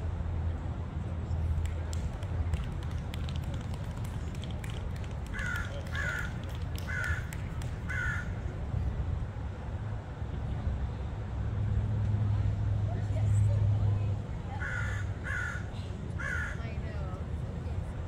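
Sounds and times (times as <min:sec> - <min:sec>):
crow cawing: 0:05.4 - 0:06.3, 0:06.9 - 0:07.3, 0:07.9 - 0:08.3, 0:14.6 - 0:15.6, 0:16.2 - 0:16.6.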